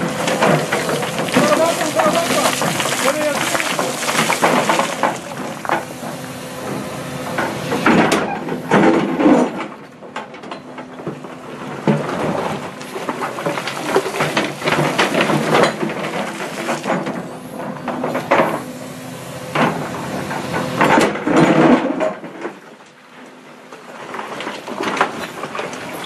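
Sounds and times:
rocks clattering in steel bucket: 0.0s - 5.9s, 11.8s - 17.2s
excavator engine hum: 0.0s - 26.0s.

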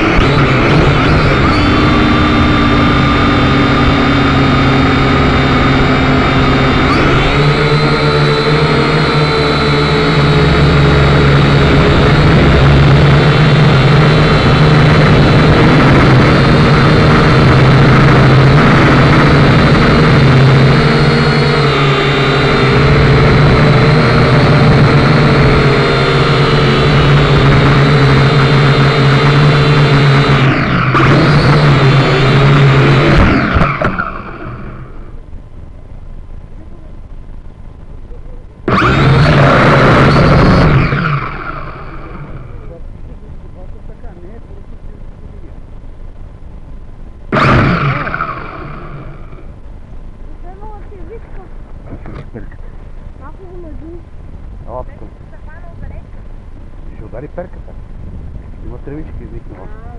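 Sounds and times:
model aircraft motor whine: 0.0s - 35.2s, 38.0s - 42.8s, 47.3s - 49.6s.

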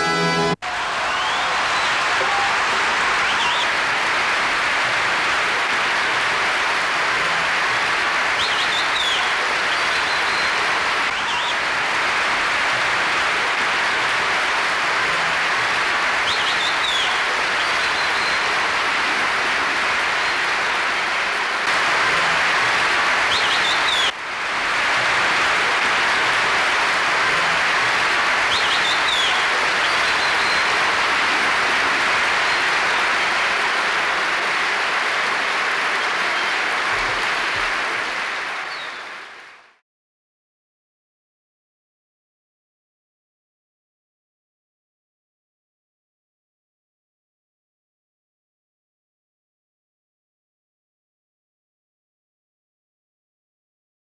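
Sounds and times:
audience applauding: 0.0s - 39.8s.

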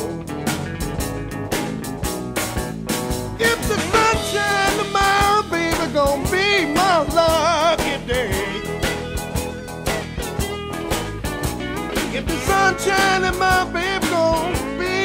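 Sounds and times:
drum and bass beat: 0.0s - 15.0s.

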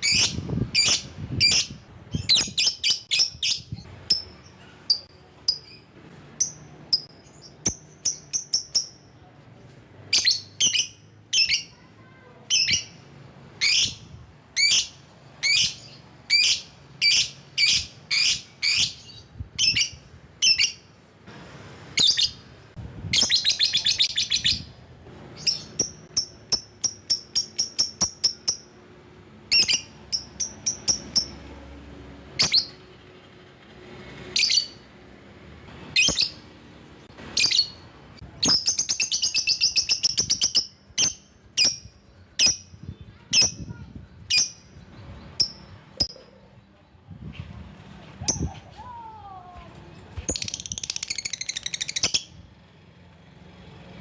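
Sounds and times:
lovebird chirping: 0.0s - 9.2s, 23.1s - 28.8s, 29.5s - 31.4s, 37.2s - 47.5s, 50.2s - 52.4s.

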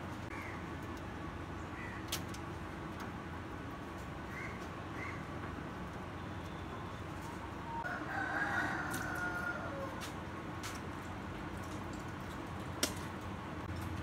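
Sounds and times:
rooster crowing: 7.7s - 10.1s.

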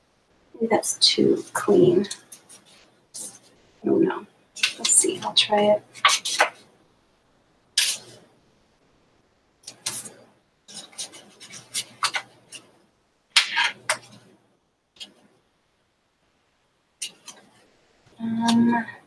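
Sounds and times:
paper and tape rustling: 6.0s - 6.6s, 7.8s - 8.2s, 9.7s - 12.7s.

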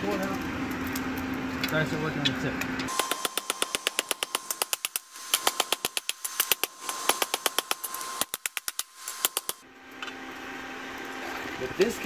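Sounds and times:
hammer forging hot steel: 2.9s - 9.6s.

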